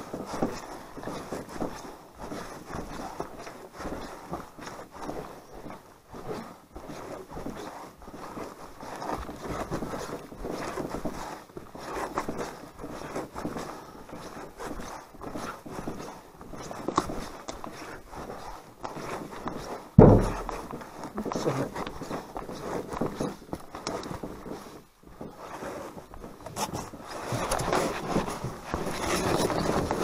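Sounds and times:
footsteps crunching on forest trail: 0.0s - 25.2s.

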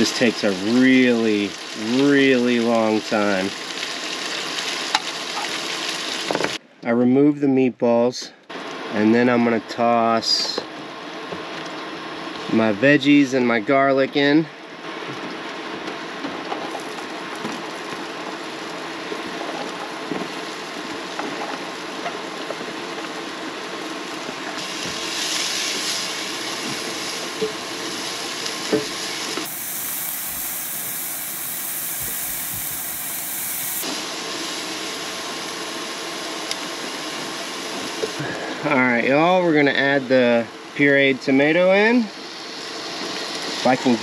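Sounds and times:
vegetables sizzling in oil: 0.0s - 6.6s, 16.7s - 38.2s, 42.2s - 43.7s
harsh hiss: 24.6s - 39.9s.

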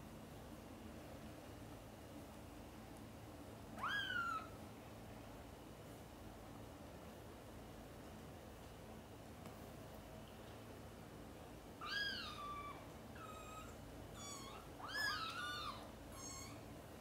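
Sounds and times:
kittens mewing: 3.8s - 4.5s, 11.8s - 16.6s.

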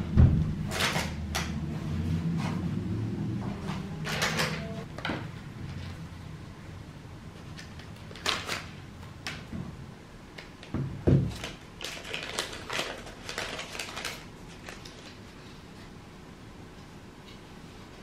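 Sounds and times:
heavy thump: 0.1s - 0.6s.

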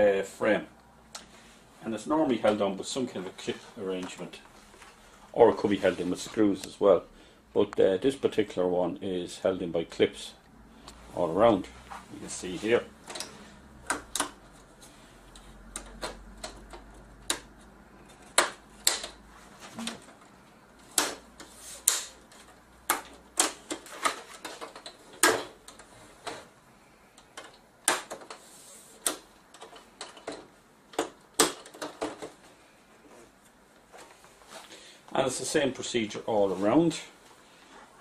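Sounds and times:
plastic clips clicking and snapping: 13.1s - 14.4s, 15.3s - 19.2s, 19.8s - 25.9s, 29.0s - 32.4s.

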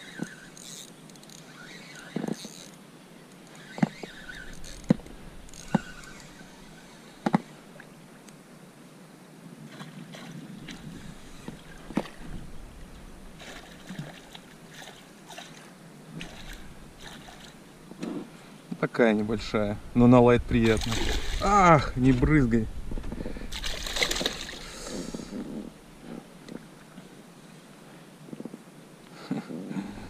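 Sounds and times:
water lapping: 3.5s - 8.0s, 9.6s - 18.6s, 20.5s - 22.2s, 23.2s - 27.6s
fish splashing at surface: 23.5s - 24.7s.

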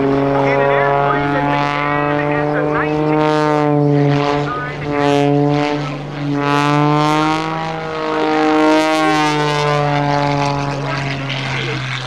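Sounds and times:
propeller plane engine at high power: 0.0s - 12.0s.

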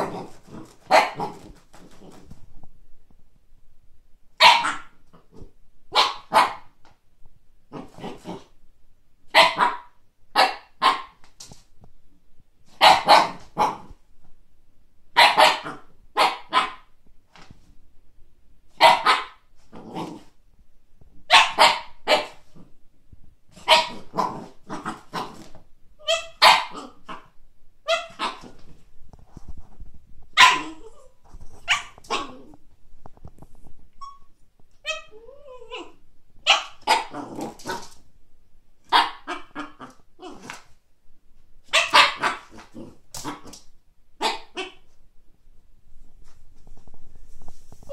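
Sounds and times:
puppy barking high-pitched: 0.0s - 1.5s, 4.4s - 5.0s, 5.9s - 6.8s, 9.3s - 11.2s, 12.8s - 14.0s, 15.2s - 16.9s, 18.8s - 19.5s, 21.3s - 22.4s, 23.6s - 25.4s, 26.0s - 28.6s, 30.4s - 31.1s, 31.7s - 32.5s, 34.8s - 37.8s, 38.9s - 40.5s, 41.7s - 43.6s, 44.2s - 44.9s.

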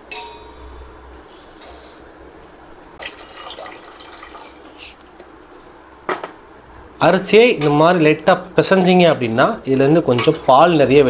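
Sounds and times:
water pouring into metal pot: 3.0s - 4.7s.

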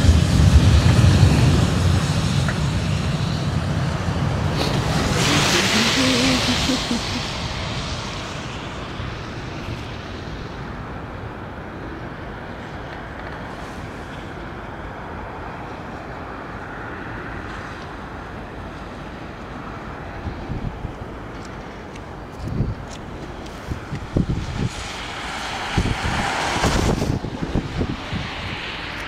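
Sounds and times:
road traffic rumble: 0.0s - 29.0s
wind blowing on microphone: 19.4s - 29.0s.

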